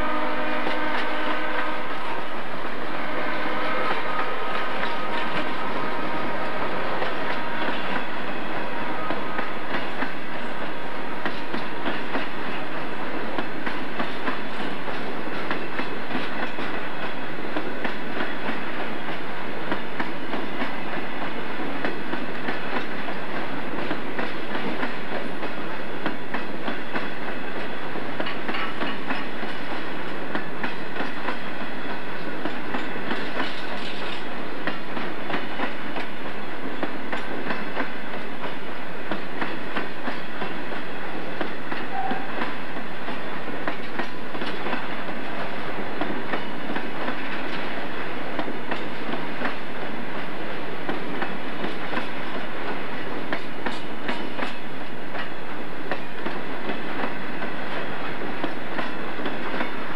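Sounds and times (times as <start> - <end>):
train wheels rumbling on rail: 0.0 - 59.9
wheels clicking over rail joints: 21.8 - 31.5, 32.4 - 40.6.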